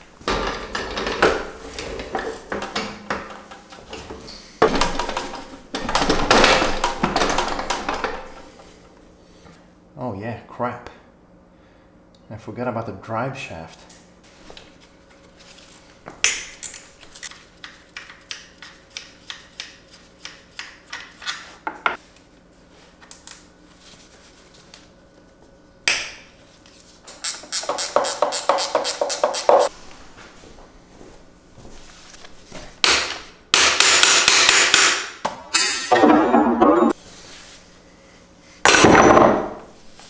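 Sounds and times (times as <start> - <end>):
hammer striking metal: 32.8 - 37.0.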